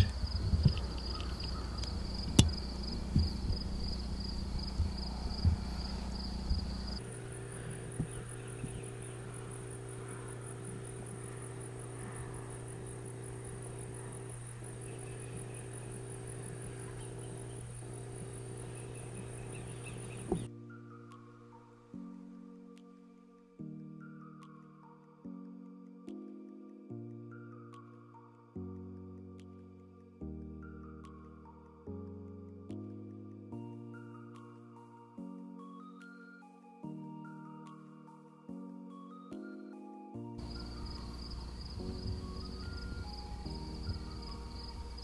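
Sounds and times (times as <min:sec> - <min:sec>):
insects trilling: 0:00.0 - 0:20.5, 0:40.4 - 0:45.0
low steady hum: 0:00.0 - 0:20.8, 0:40.4 - 0:45.0.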